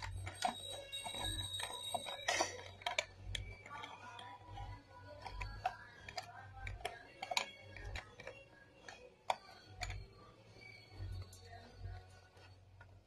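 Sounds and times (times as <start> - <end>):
socket wrench clicking: 4.6 - 10.0.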